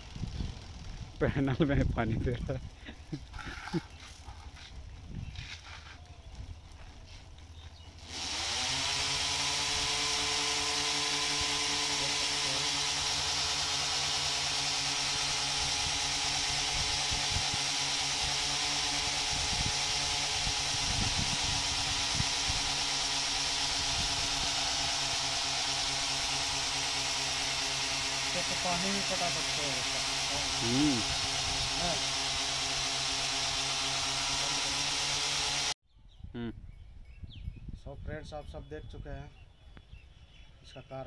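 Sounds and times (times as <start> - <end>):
electric spray pump humming: 0.0 - 35.8
water jet hissing: 8.0 - 35.8.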